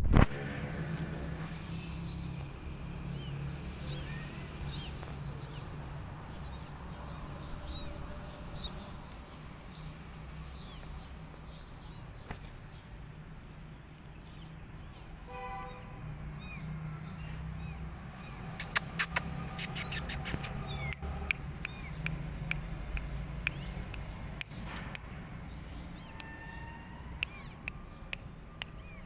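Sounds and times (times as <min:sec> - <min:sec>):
small chirps: 0:17.6 - 0:26.3, 0:27.2 - 0:29.0
kitten meowing: 0:18.2 - 0:21.0, 0:21.6 - 0:22.0, 0:27.2 - 0:27.7, 0:28.6 - 0:29.0
sharp clicks: 0:18.3 - 0:26.3, 0:27.2 - 0:29.0.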